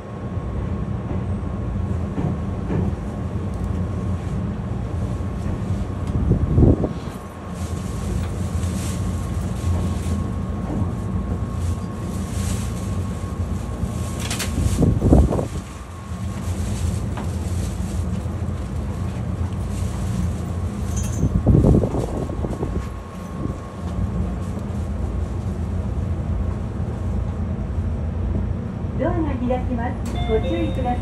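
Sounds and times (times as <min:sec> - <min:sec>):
train rumbling on rails: 0:00.0 - 0:31.0.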